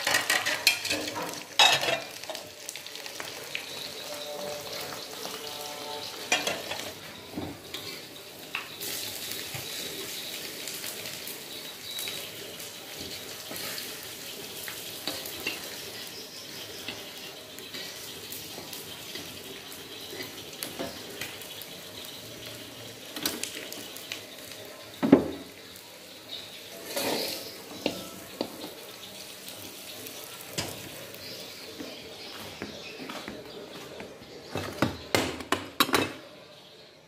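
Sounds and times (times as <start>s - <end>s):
dishes and pots clattering: 0.0s - 9.9s, 12.9s - 21.6s, 22.4s - 25.6s, 26.3s - 29.0s, 30.4s - 31.1s, 32.5s - 36.4s.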